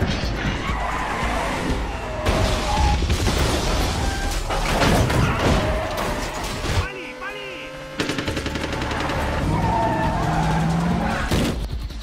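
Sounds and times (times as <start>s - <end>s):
car skidding: 0.4s - 6.8s, 8.8s - 11.3s
loud crashes and bangs: 1.5s - 6.8s.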